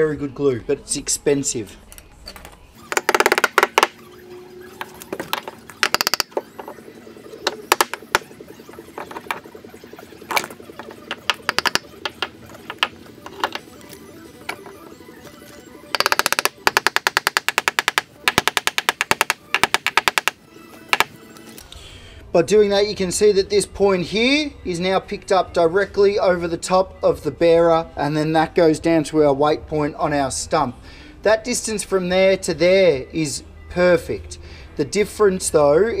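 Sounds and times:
hammer knocking on wood: 0:11.1 - 0:13.6, 0:16.0 - 0:20.4.

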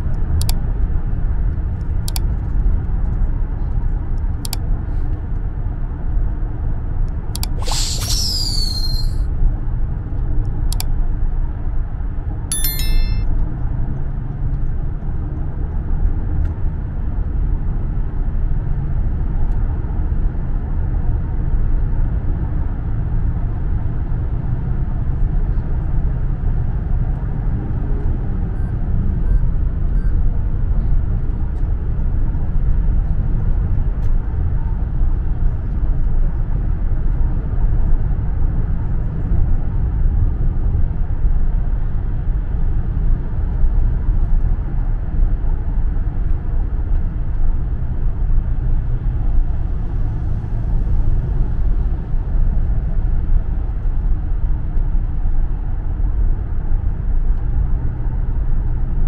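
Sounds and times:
sharp clicks: 0:07.4 - 0:09.2
bright swooping whoosh: 0:07.6 - 0:09.2
short bright chime: 0:07.7 - 0:09.2, 0:12.5 - 0:13.2.

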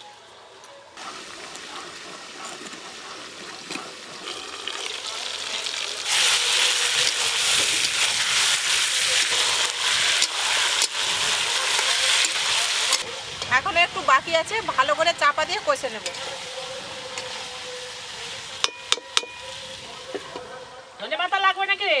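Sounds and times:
metal spatula stirring and scraping: 0:02.3 - 0:13.5, 0:16.0 - 0:19.7
chicken sizzling in a pan: 0:03.0 - 0:20.3.

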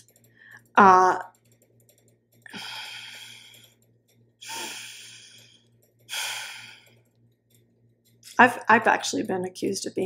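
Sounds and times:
woman breathing: 0:02.5 - 0:03.8, 0:04.4 - 0:07.0.

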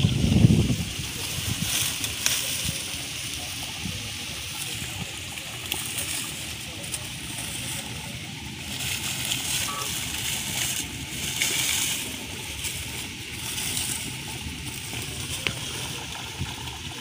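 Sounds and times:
dry leaves rustling and crackling: 0:00.0 - 0:17.0
steady low rumble: 0:00.0 - 0:17.0.

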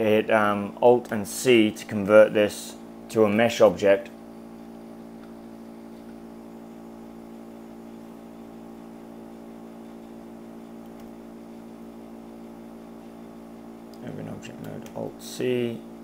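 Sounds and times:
steady multi-tone hum: 0:00.0 - 0:16.0.

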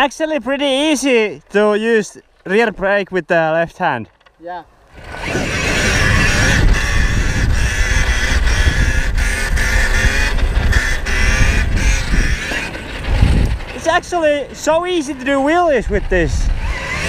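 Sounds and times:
tyre noise on dirt: 0:03.8 - 0:15.6
wind rushing on microphone: 0:05.0 - 0:17.0.

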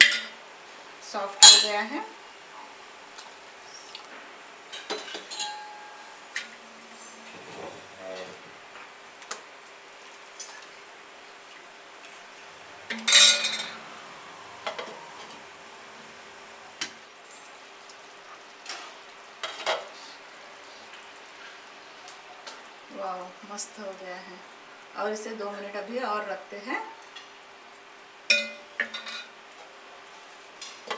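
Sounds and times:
curry boiling: 0:00.0 - 0:30.9
ladle clinking and scraping pan: 0:04.8 - 0:06.0, 0:12.9 - 0:13.9
glass lid clinking on pan: 0:05.3 - 0:06.0, 0:28.3 - 0:29.3.

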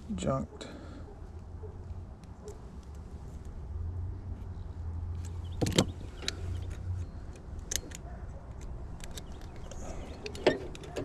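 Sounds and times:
metal tools clicking and knocking: 0:05.6 - 0:11.0.

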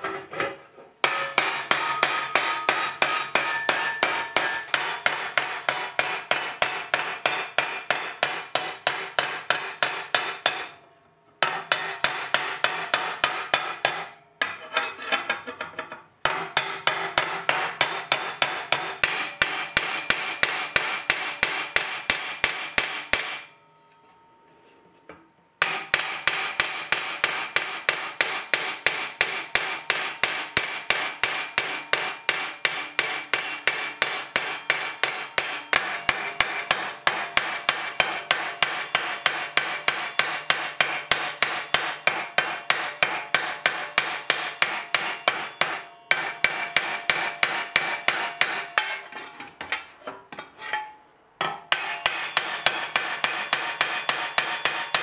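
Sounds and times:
hammer striking metal plate: 0:00.0 - 0:10.8, 0:11.4 - 0:23.7, 0:25.6 - 0:55.0.

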